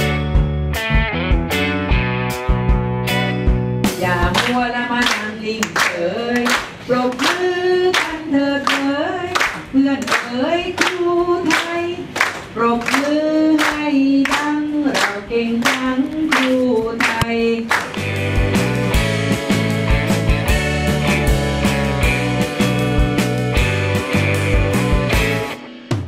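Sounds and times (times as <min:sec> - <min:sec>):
women singing in unison: 0:04.0 - 0:12.0, 0:12.6 - 0:17.7
people clapping along: 0:04.2 - 0:18.3.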